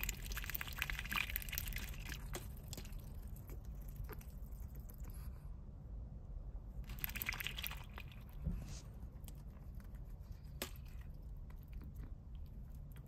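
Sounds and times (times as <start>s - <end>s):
duck splashing in water: 0.0s - 3.0s, 6.9s - 8.3s
low steady hum: 0.0s - 13.0s.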